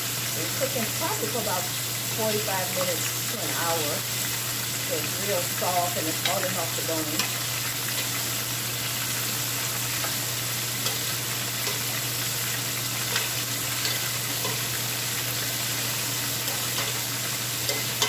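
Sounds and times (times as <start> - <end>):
chicken sizzling in deep fryer oil: 0.0 - 18.0
metal utensil clicking on pan: 7.1 - 7.4, 10.8 - 12.0, 13.0 - 15.4, 16.4 - 18.0.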